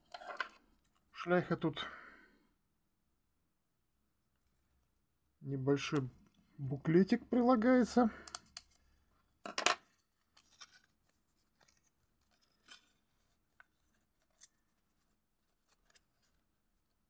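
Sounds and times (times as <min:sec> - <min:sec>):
paper booklet handled: 0:08.3 - 0:16.9.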